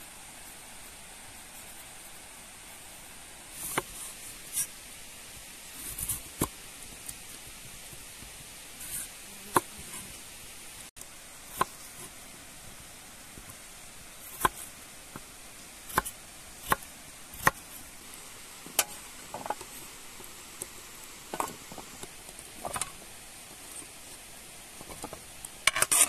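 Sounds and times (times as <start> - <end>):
steady background hiss: 0.0 - 26.0.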